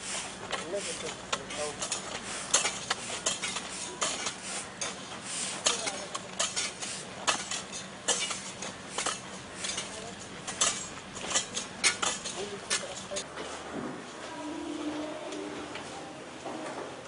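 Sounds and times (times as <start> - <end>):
hand tools scraping soil and bricks: 0.0 - 13.3.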